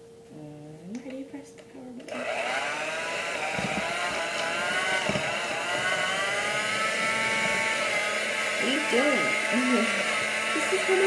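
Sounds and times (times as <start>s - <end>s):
electric hand mixer whining: 2.1s - 11.0s
low knocks: 3.5s - 6.7s.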